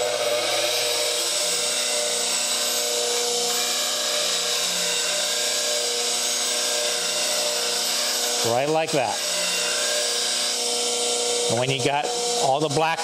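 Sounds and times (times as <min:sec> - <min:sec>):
grinder motor hum: 0:00.0 - 0:13.0
grinding hiss: 0:00.0 - 0:13.0.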